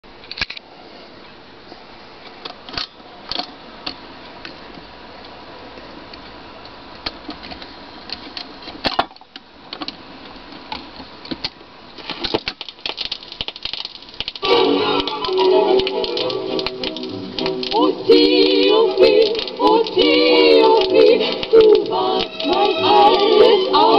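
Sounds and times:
faint steady hiss: 0.1 - 23.9
record crackle: 7.0 - 23.9.

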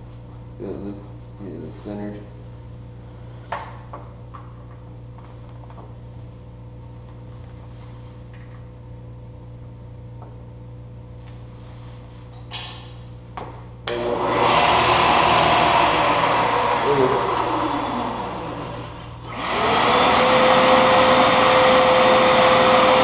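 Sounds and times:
steady low hum: 0.0 - 14.0
machine motor running loudly: 13.9 - 23.0.

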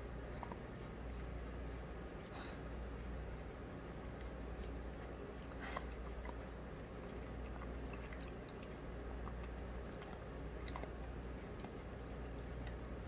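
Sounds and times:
low steady hum: 0.0 - 13.0
dog chewing wet food: 4.2 - 13.0.

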